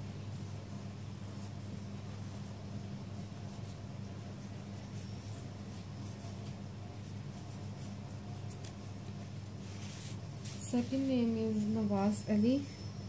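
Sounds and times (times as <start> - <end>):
steady low hum: 0.0 - 13.0
marker on paper: 3.5 - 8.9.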